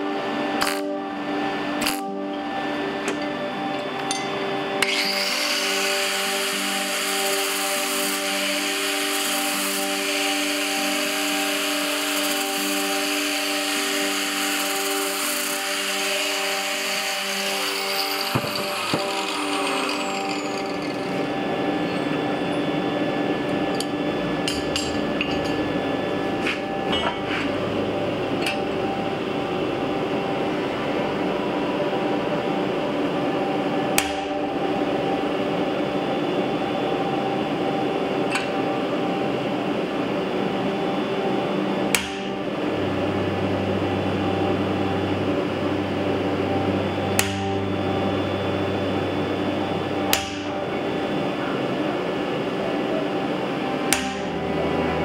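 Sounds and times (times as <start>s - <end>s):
steady hum and hiss: 0.0s - 55.0s
angle grinder winding down: 4.4s - 26.8s.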